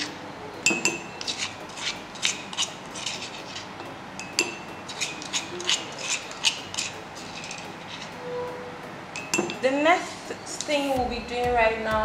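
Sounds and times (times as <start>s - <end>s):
plastic spoon scraping bowl: 1.2s - 3.8s, 4.9s - 8.4s.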